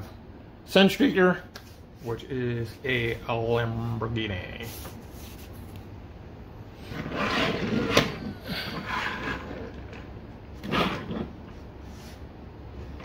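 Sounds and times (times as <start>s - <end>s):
toy cars rolling on wood: 6.9s - 11.4s.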